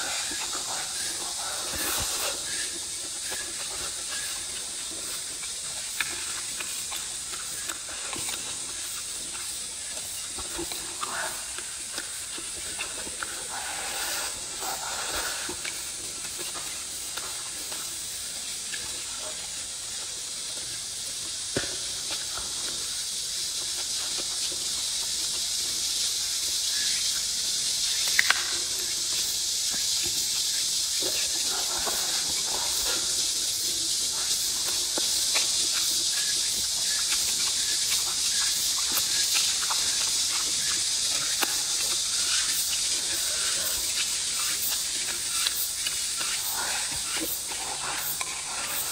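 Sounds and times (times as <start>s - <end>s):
steady high hiss: 0.0s - 48.9s
chewing and mouth sounds: 34.2s - 48.9s.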